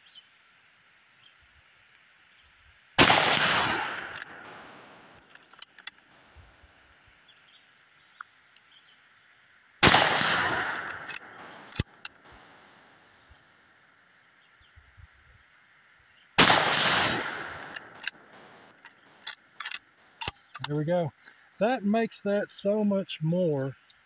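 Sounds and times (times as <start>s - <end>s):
rifle shots echoing: 3.0s - 6.0s, 9.8s - 13.2s, 16.4s - 20.6s
rifle bolt clicking: 3.1s - 6.0s, 9.9s - 12.7s, 16.4s - 20.7s.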